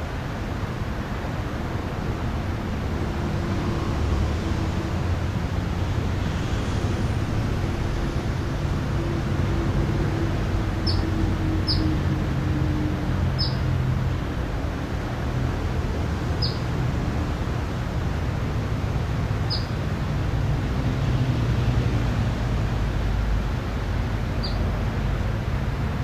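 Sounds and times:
low engine hum: 0:00.0 - 0:26.0
traffic rumble: 0:00.0 - 0:26.0
bird chirping: 0:10.8 - 0:11.1, 0:13.4 - 0:13.6, 0:16.4 - 0:16.6, 0:19.5 - 0:19.8, 0:24.4 - 0:24.6.

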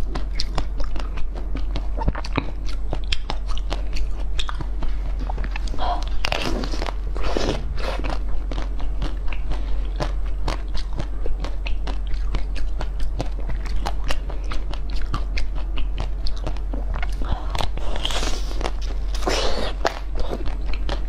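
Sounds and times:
crunchy chewing: 0:00.0 - 0:21.0
steady low hum: 0:00.0 - 0:21.0.

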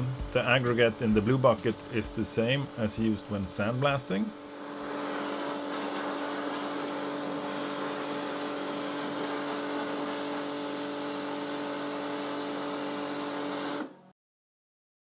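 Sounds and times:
machine hum: 0:00.0 - 0:10.5
water jet hissing: 0:00.0 - 0:14.0.

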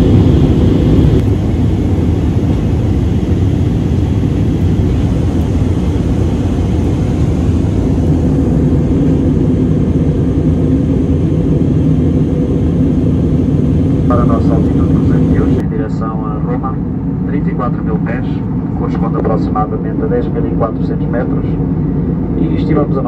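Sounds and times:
air rushing: 0:00.0 - 0:15.6
jet engine cabin rumble: 0:00.0 - 0:23.0.

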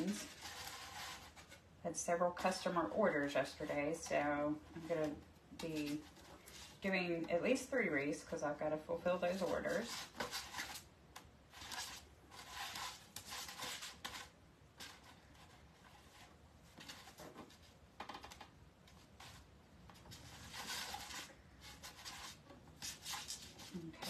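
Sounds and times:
scratchy rustling of pipe cleaners: 0:00.0 - 0:10.9, 0:18.8 - 0:24.0.

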